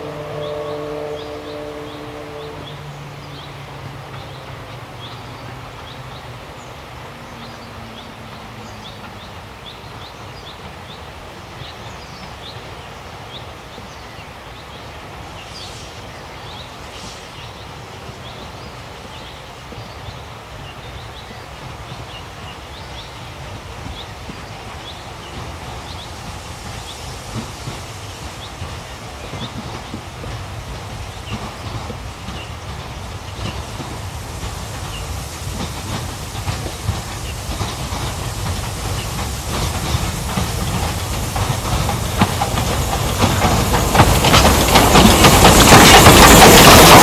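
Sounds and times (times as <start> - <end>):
steam locomotive whistle: 0.0 - 3.1
steam train rumbling: 0.0 - 47.0.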